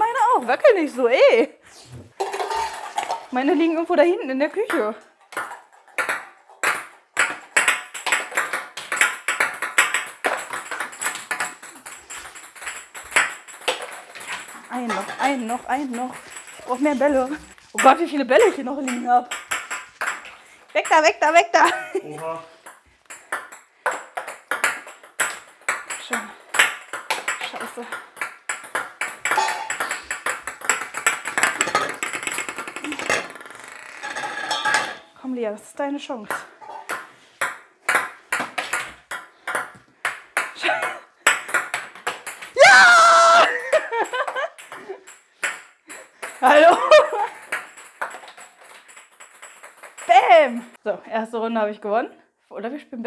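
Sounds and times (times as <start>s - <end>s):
plastic balls bouncing on tabletop: 4.5s - 35.0s, 36.2s - 50.8s
balls knocking plastic board: 4.6s - 21.4s, 22.2s - 34.9s, 36.3s - 40.6s, 41.2s - 42.6s, 47.4s - 50.5s.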